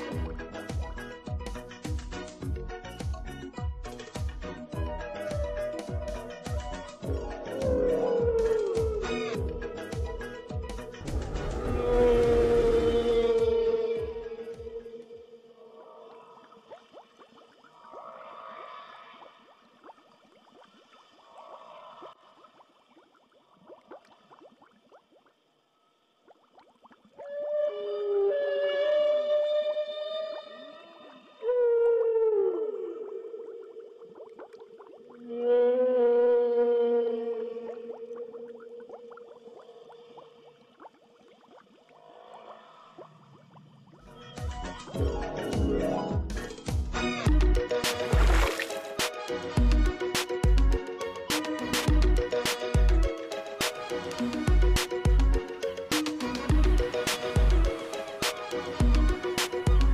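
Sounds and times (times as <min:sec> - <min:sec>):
underwater bubbling: 0:04.8 - 0:27.6, 0:30.5 - 0:48.8
music with percussive hits: 0:44.4 - 0:59.9.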